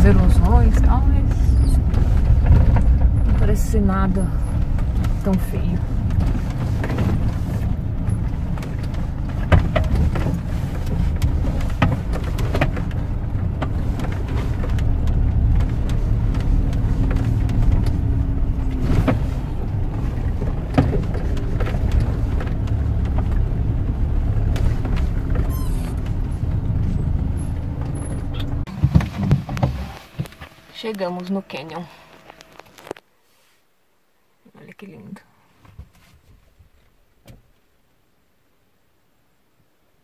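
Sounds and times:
knocks and rattles from bumps: 0.0s - 30.4s
engine and road rumble: 0.0s - 40.0s.

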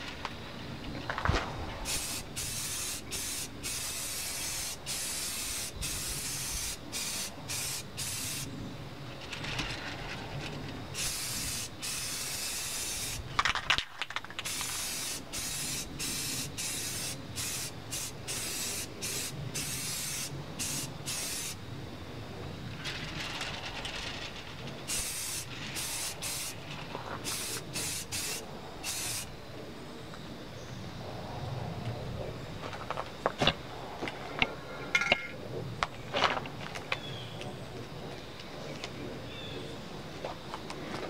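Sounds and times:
spray paint can hissing: 1.8s - 8.5s, 10.9s - 13.3s, 14.4s - 21.6s, 24.8s - 26.6s, 27.2s - 29.3s.

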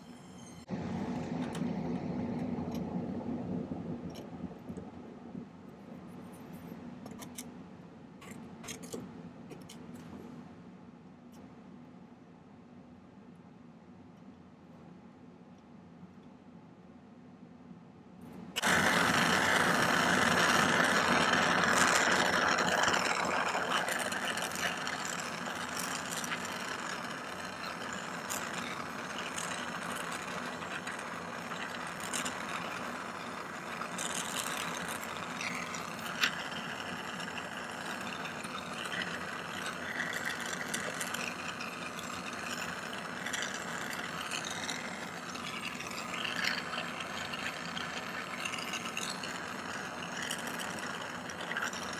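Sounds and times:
gas torch flame hissing: 18.5s - 51.9s.

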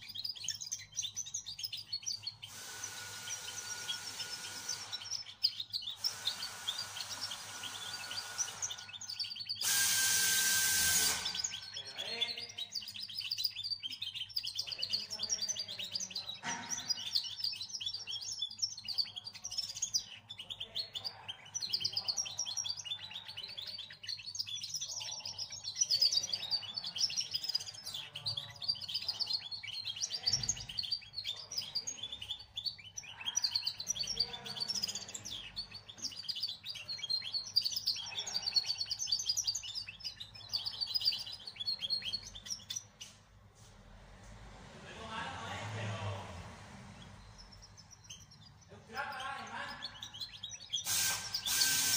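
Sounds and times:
songbird twittering: 0.0s - 43.2s
loud hiss: 9.6s - 11.4s, 50.8s - 51.9s.

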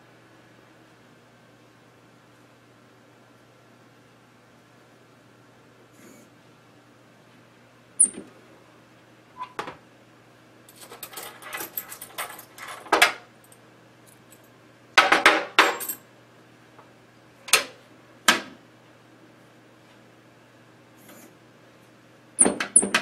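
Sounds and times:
items clattering and clinking: 10.7s - 13.2s.

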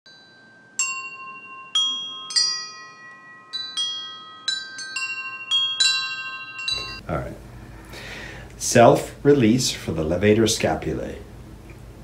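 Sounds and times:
wind chimes ringing: 0.1s - 7.0s.

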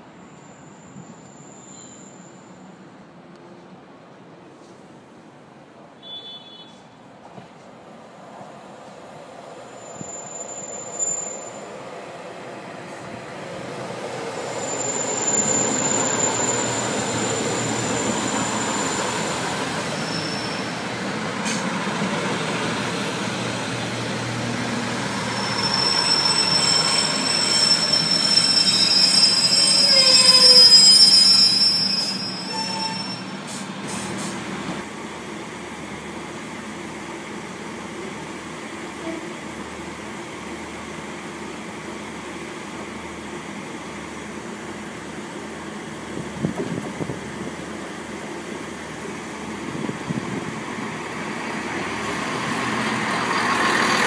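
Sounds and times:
diesel railcar engine rumble: 0.0s - 54.0s
high wheel squeal: 0.2s - 2.6s, 9.7s - 11.8s, 14.3s - 21.6s, 25.0s - 34.0s.

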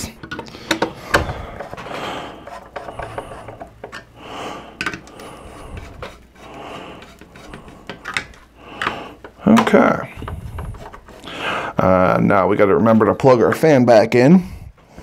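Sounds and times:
metal and plastic clicks and scraping: 0.1s - 4.1s, 4.8s - 11.3s
heavy breathing: 0.4s - 9.4s, 10.0s - 11.9s.

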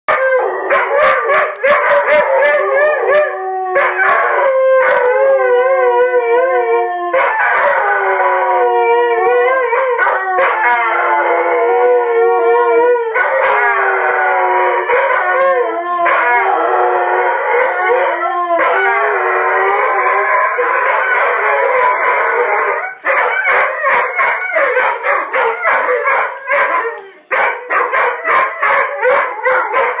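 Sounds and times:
dogs howling: 0.1s - 30.0s.

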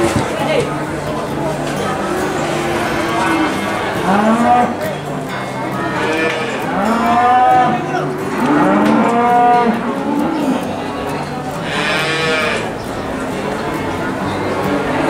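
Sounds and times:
cattle mooing: 2.4s - 4.8s, 6.0s - 7.8s, 8.4s - 10.6s, 11.6s - 12.7s.

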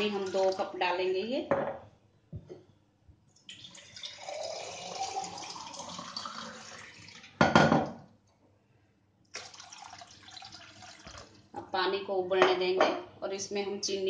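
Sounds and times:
water pouring into metal pot: 0.0s - 0.8s, 3.5s - 7.4s, 9.4s - 11.5s.

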